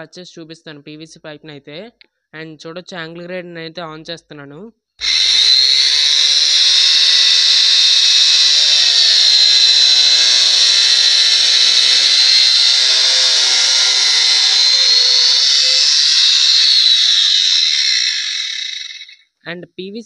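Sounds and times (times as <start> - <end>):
angle grinder cutting pipe: 5.0 - 19.2.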